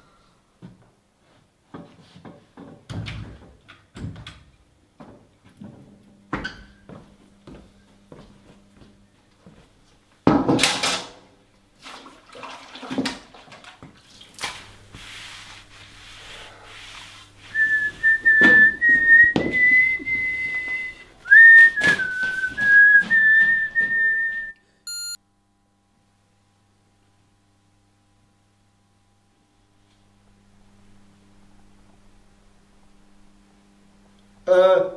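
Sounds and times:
person whistling a tune: 17.5s - 25.2s
electronic beep: 24.9s - 25.2s.

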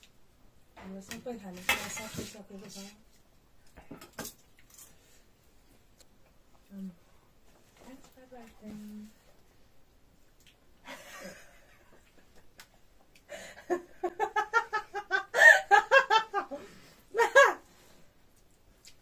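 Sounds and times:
person laughing: 13.4s - 16.6s, 17.2s - 17.6s.

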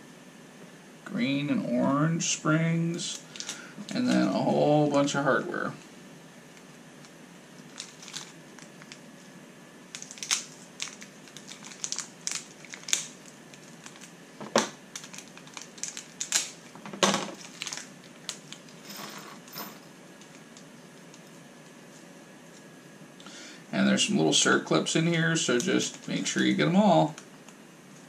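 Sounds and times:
plastic bags crinkling: 3.2s - 4.4s, 7.6s - 9.1s, 9.9s - 19.0s.

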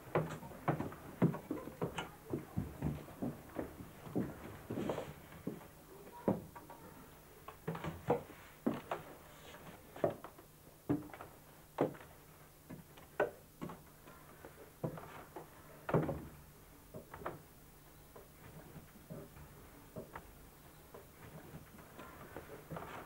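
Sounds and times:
footsteps on wooden stairs: 0.0s - 6.6s, 14.8s - 17.4s, 18.2s - 23.0s.

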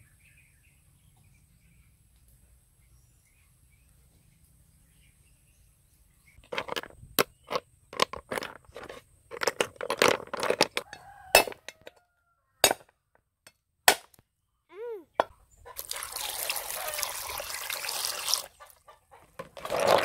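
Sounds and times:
snail shells clinking: 6.4s - 12.0s.

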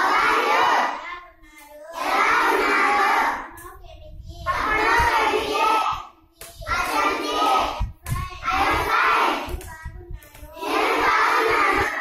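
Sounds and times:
children reciting in chorus: 0.0s - 12.0s.

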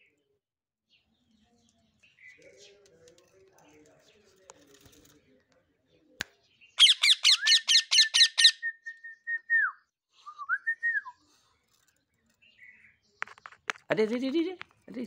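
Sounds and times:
parakeet squawking: 6.8s - 8.6s.

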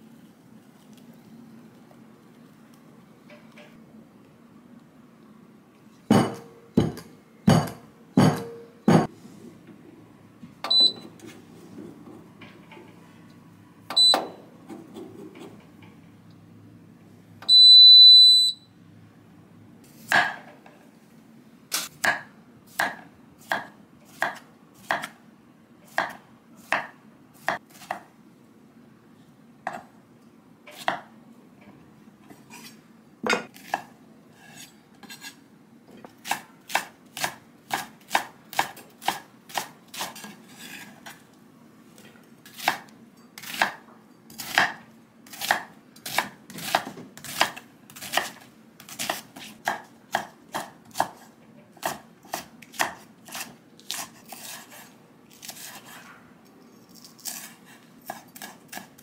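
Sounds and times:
knife chopping on wooden board: 6.1s - 9.1s, 22.0s - 25.2s, 45.4s - 51.2s
oven beeper long beep: 10.7s - 11.1s, 13.9s - 14.4s, 17.5s - 18.8s.

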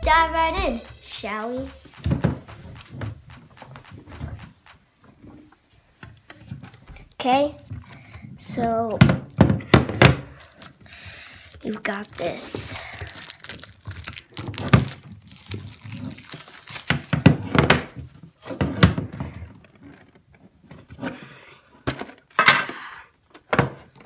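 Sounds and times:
plastic wrap crinkling: 0.9s - 4.9s, 6.2s - 8.2s, 10.1s - 18.2s.

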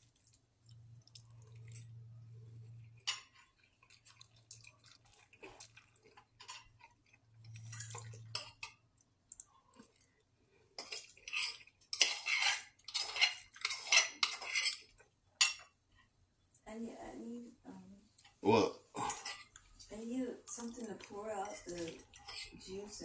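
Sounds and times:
metal utensil scraping a pot: 10.8s - 15.6s, 20.6s - 23.0s.

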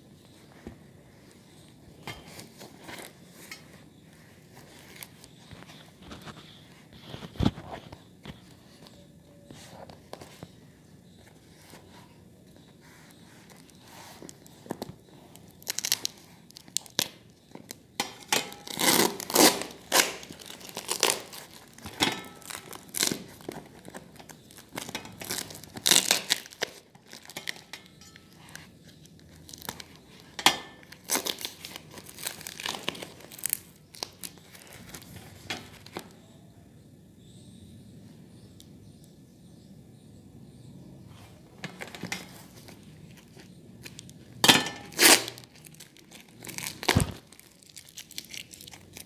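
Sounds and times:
paper wrapping tearing and crumpling: 15.4s - 17.2s, 18.2s - 27.8s, 29.5s - 35.9s, 41.8s - 49.0s.

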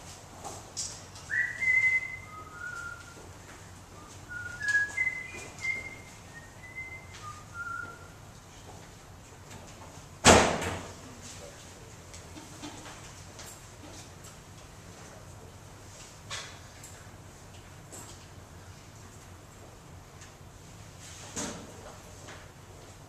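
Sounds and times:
person whistling a tune: 1.3s - 3.2s, 4.0s - 8.2s.

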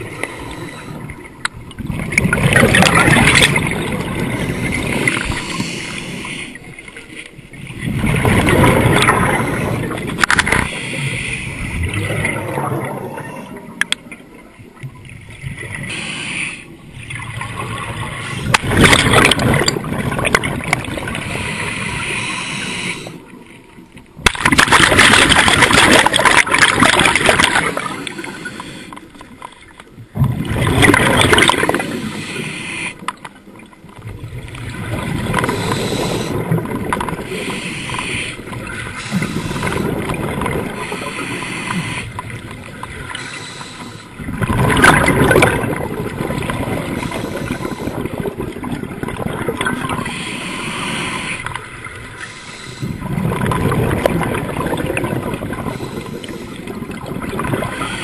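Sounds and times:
exhaled bubbles rushing: 1.1s - 5.6s, 7.5s - 10.7s, 11.6s - 13.8s, 17.0s - 21.5s, 24.2s - 28.4s, 30.1s - 32.0s, 34.0s - 37.3s, 38.4s - 41.0s, 44.2s - 50.1s, 52.8s - 58.0s.

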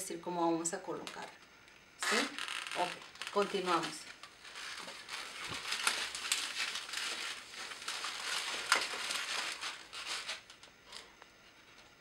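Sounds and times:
balloons rubbing: 2.0s - 10.4s.

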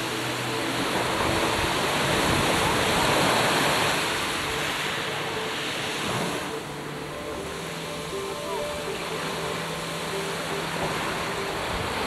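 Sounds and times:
choppy sea: 0.0s - 12.0s
wind on microphone: 0.0s - 12.0s.

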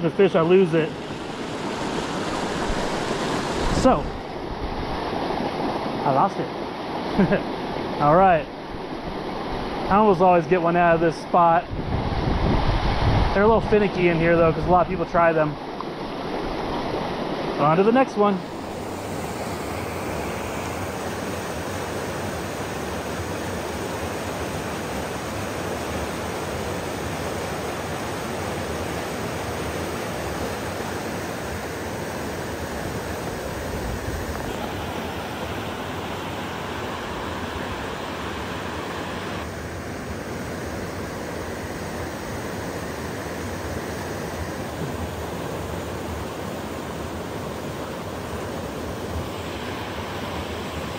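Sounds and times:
river rushing over rapids: 14.0s - 50.9s.

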